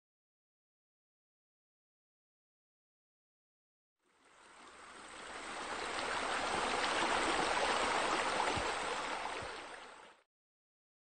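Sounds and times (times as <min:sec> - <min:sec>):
running splashing water: 0:04.3 - 0:10.2.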